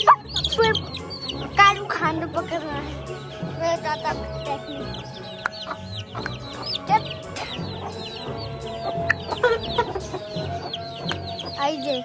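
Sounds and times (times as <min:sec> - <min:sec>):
hen clucking: 0:00.0 - 0:02.0, 0:04.1 - 0:11.6
baby chicks peeping: 0:00.0 - 0:12.0.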